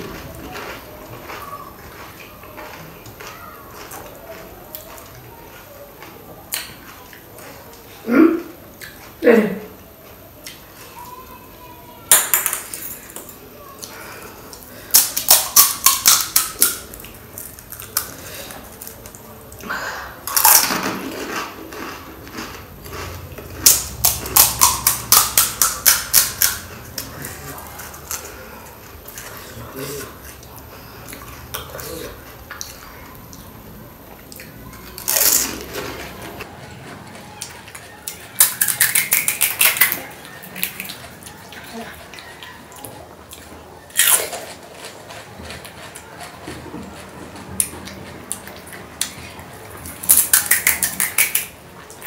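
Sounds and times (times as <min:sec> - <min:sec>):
crunching food: 0:00.0 - 0:08.0, 0:12.0 - 0:52.0
crisp shells crunching: 0:20.2 - 0:28.4, 0:35.0 - 0:36.4.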